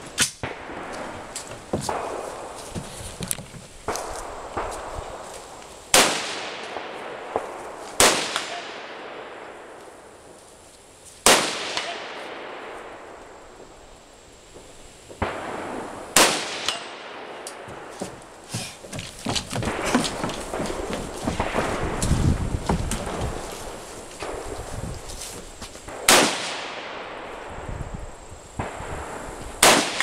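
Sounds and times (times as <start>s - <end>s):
gunshots echoing: 5.9s - 9.8s, 11.2s - 13.2s, 15.2s - 18.4s, 19.5s - 22.0s, 25.9s - 27.5s, 29.6s - 30.0s.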